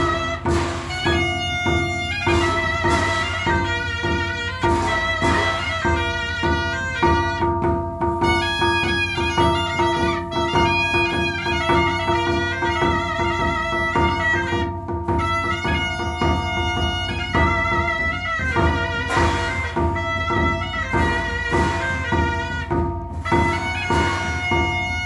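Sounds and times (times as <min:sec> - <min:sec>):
held drone note: 0:15.9 - 0:25.0.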